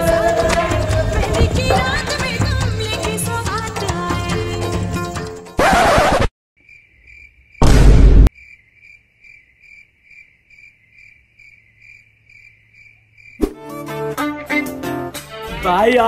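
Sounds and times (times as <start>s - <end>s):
crickets chirping: 6.6s - 7.7s, 8.3s - 13.5s
loud burst with deep boom: 7.6s - 8.3s.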